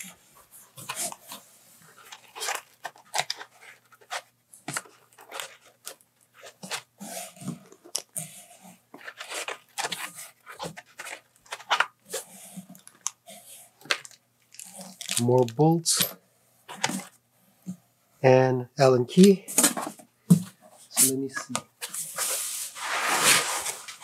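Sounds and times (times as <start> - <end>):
plastic bags and foam crinkling: 13.8 - 15.9.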